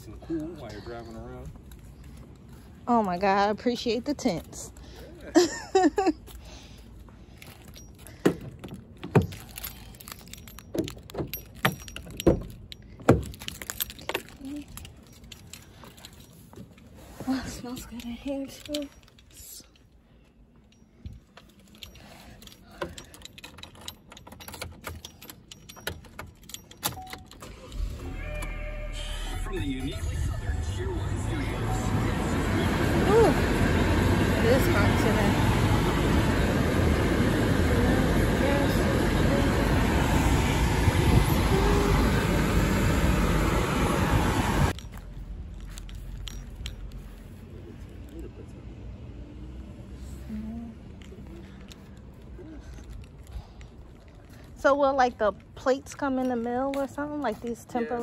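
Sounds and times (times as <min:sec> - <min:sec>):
outdoor ambience: 0:00.0 - 0:58.0
light clicks and rattles of handling: 0:03.8 - 0:27.8, 0:44.7 - 0:48.4, 0:50.9 - 0:58.0
loud rushing noise in car cabin: 0:27.5 - 0:44.8
steady low hum: 0:27.8 - 0:44.8.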